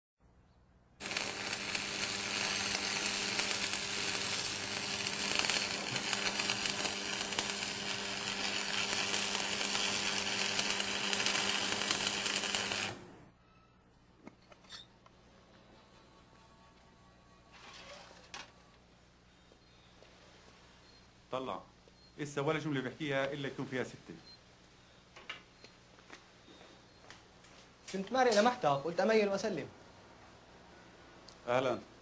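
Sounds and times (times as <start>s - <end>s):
faint electrical hum: 0.2s - 32.0s
arc welding crackle: 1.0s - 13.3s.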